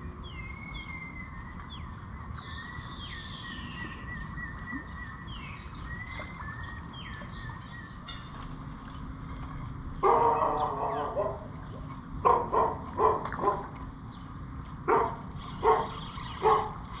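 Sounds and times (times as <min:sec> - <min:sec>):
thin steady bird trill: 0:14.1 - 0:17.0.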